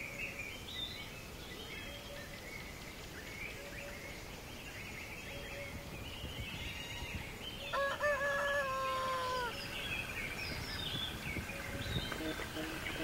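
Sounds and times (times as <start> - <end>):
rooster crowing: 7.7 - 9.6.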